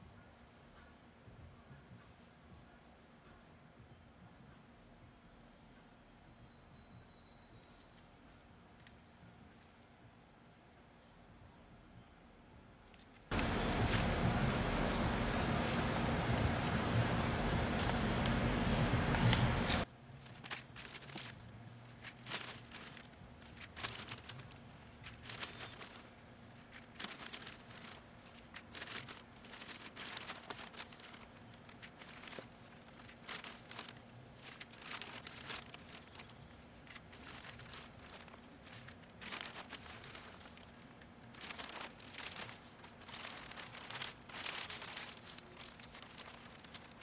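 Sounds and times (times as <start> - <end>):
plastic bag crinkling: 20.2 - 47.0.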